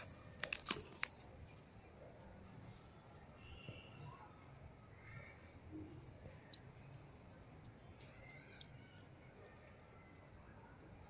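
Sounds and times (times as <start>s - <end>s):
monkey biting corn crunch: 0.4s - 1.2s
faint high chirp: 1.2s - 11.0s.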